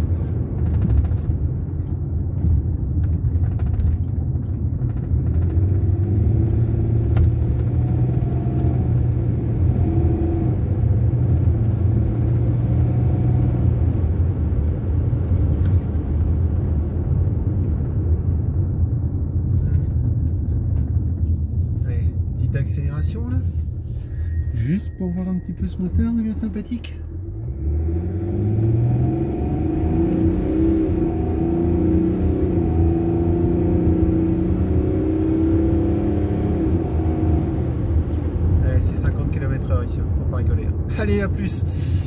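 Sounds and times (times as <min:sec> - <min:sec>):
car engine and road noise: 0:00.0 - 0:42.0.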